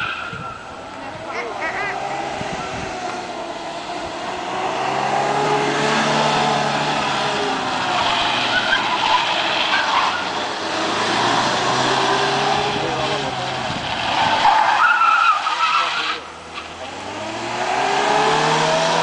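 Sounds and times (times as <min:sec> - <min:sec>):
rally car engine revving past: 0:01.2 - 0:09.7, 0:16.6 - 0:19.0.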